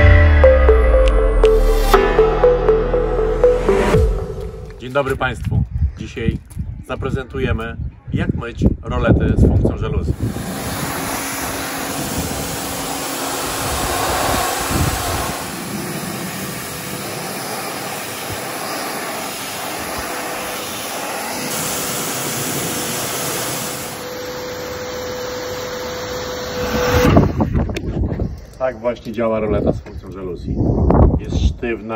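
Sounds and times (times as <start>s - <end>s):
pressure washer jet hissing: 10.2s - 27.0s.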